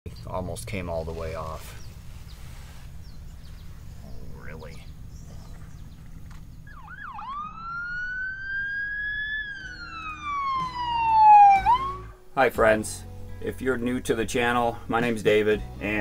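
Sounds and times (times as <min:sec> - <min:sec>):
siren wailing: 0:06.6 - 0:12.2.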